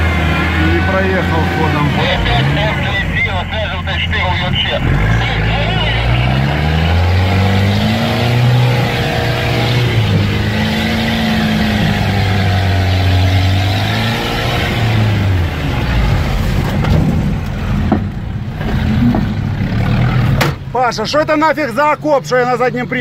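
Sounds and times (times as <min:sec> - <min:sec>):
vehicle engine revving: 0:00.0 - 0:20.7
vehicle jolting knocks: 0:16.5 - 0:19.5.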